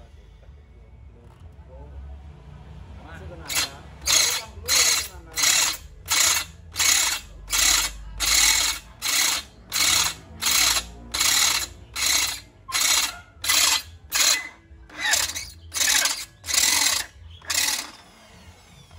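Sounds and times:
electric drill boring into metal: 3.5 - 18.9.

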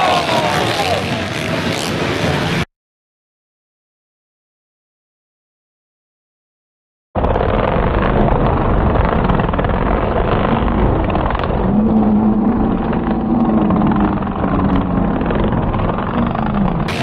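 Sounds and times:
quad engines running hard: 0.0 - 2.7, 7.2 - 17.0.

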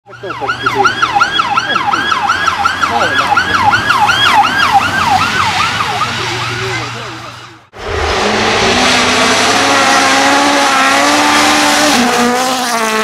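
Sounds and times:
fast yelping siren: 0.1 - 6.9.

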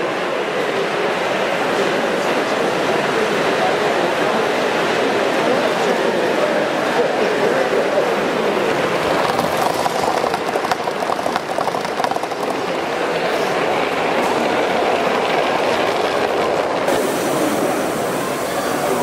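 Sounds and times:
steady background noise: 0.0 - 19.0
model train wheels clicking: 8.4 - 19.0.

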